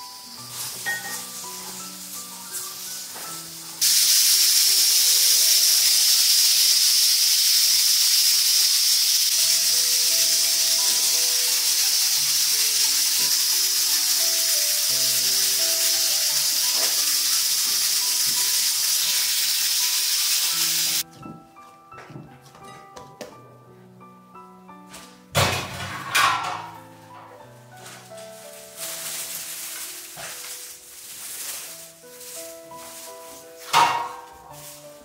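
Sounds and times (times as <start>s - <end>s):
gentle background music: 0.0s - 6.8s, 9.3s - 35.0s
food sizzling: 0.0s - 21.0s, 28.3s - 35.0s.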